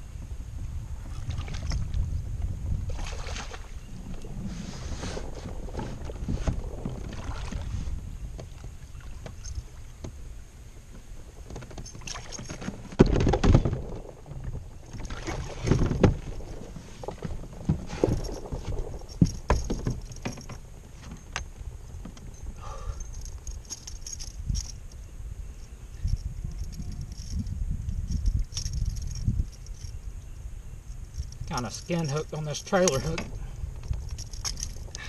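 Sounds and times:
water and handling noise: 0:01.0 - 0:02.1, 0:02.9 - 0:25.0, 0:30.9 - 0:35.0
knocks on boat: 0:12.9 - 0:14.0.

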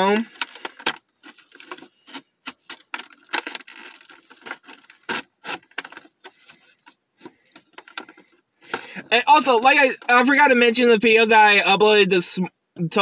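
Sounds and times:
packaging clicks and crinkles: 0:00.2 - 0:09.0.

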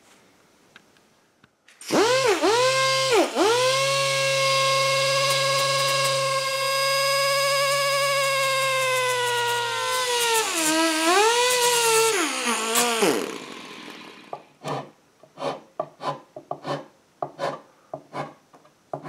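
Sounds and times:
electric disc sander whining: 0:01.9 - 0:14.5.

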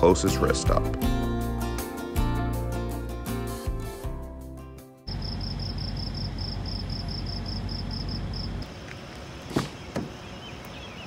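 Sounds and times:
cricket chirping: 0:05.1 - 0:08.7.

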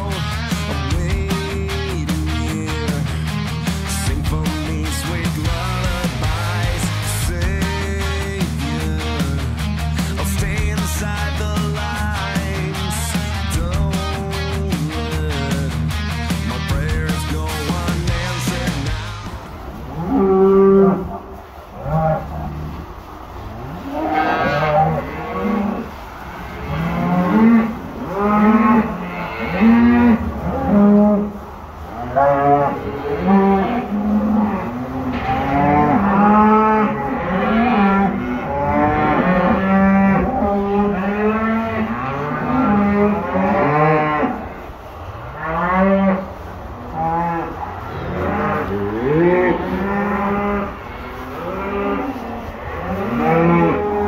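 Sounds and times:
cows and calves mooing: 0:16.4 - 0:54.0.

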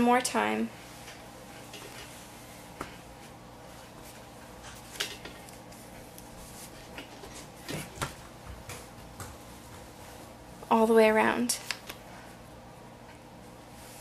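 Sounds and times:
iron rustling on fabric: 0:00.7 - 0:08.4, 0:09.0 - 0:10.6, 0:13.4 - 0:14.0.

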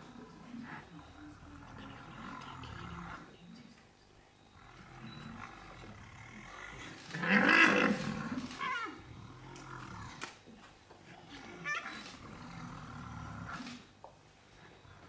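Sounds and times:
rhino growling bellow: 0:00.0 - 0:03.3, 0:04.5 - 0:10.2, 0:11.2 - 0:13.9.

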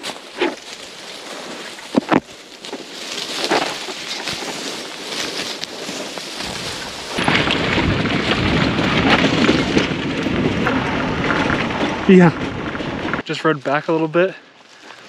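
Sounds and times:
wind buffeting rumble: 0:05.9 - 0:13.7.

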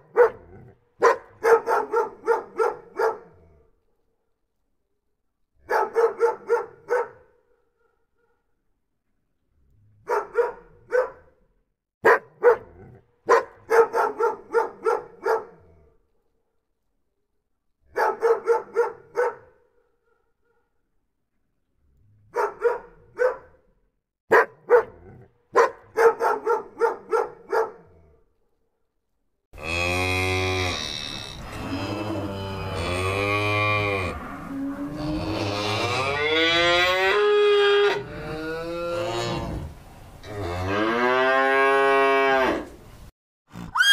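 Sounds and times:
dog barking: 0:00.0 - 0:03.5, 0:05.6 - 0:07.4, 0:10.0 - 0:11.4, 0:12.0 - 0:15.8, 0:17.9 - 0:20.6, 0:22.3 - 0:28.0
cow mooing: 0:29.6 - 0:39.6.

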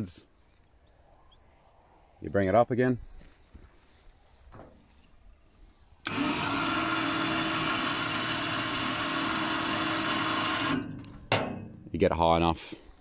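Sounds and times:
electric winch humming: 0:06.0 - 0:11.2.

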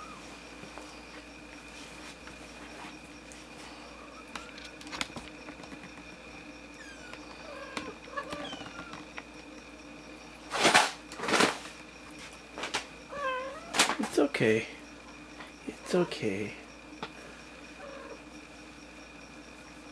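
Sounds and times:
kittens mewing: 0:03.7 - 0:04.9, 0:06.7 - 0:09.2, 0:13.1 - 0:13.9, 0:17.7 - 0:18.3.

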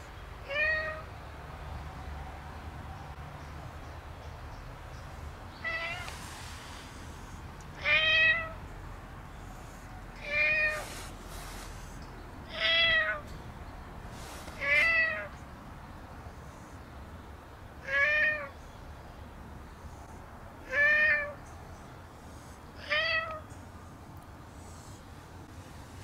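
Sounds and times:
cat meowing: 0:00.4 - 0:01.1, 0:05.6 - 0:06.1, 0:07.8 - 0:08.6, 0:10.2 - 0:10.9, 0:12.5 - 0:13.2, 0:14.6 - 0:15.3, 0:17.8 - 0:18.5, 0:20.6 - 0:21.4, 0:22.8 - 0:23.4.

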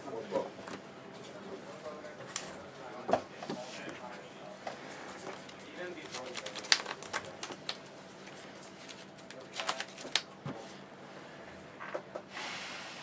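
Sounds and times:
trading cards shuffling: 0:05.1 - 0:10.3.

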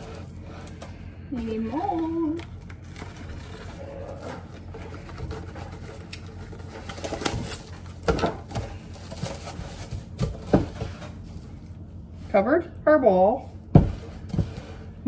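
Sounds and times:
cling wrap crinkling: 0:00.0 - 0:12.1
cling wrap tearing: 0:02.4 - 0:08.0.

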